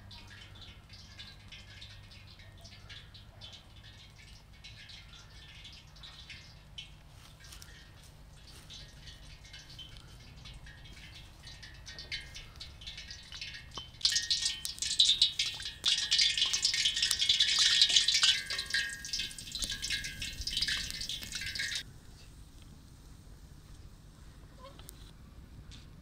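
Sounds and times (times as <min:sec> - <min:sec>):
hot oil sizzling and crackling: 0:00.0 - 0:25.1.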